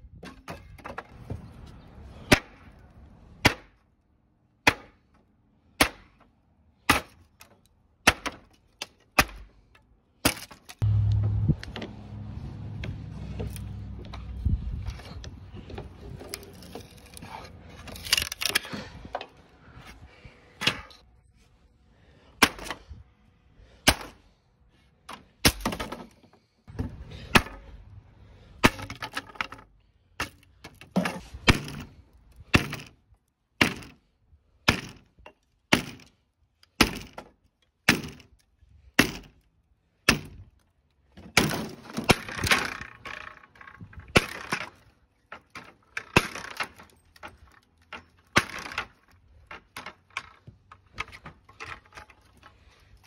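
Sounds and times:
hammer striking wooden boards: 33.6 - 34.0, 34.7 - 35.0, 35.7 - 36.1, 36.8 - 37.3, 37.9 - 38.2, 39.0 - 39.3, 40.1 - 40.4.

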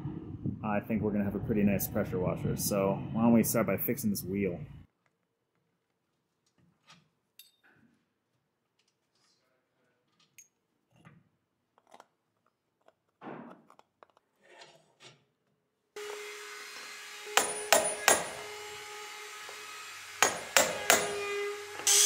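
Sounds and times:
steady shop hum: 16.0 - 22.0
hammer striking metal hub: 17.4 - 18.4, 20.2 - 21.3.

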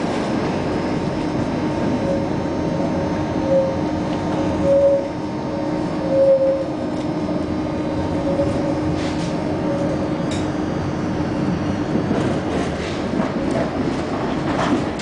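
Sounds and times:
low hum: 0.0 - 13.6
tram wheels rumbling on rails: 0.0 - 15.0.

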